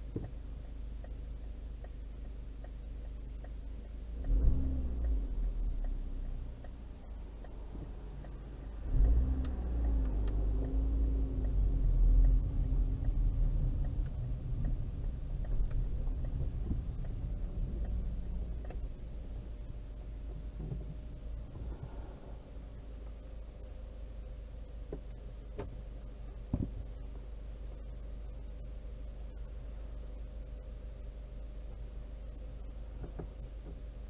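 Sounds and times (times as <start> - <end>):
car engine idling and accelerating: 0.0 - 34.0.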